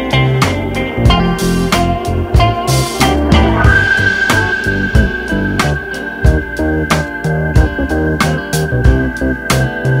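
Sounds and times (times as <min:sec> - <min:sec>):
instrumental music with steady beat: 0:00.0 - 0:10.0
held high tone: 0:03.0 - 0:07.8.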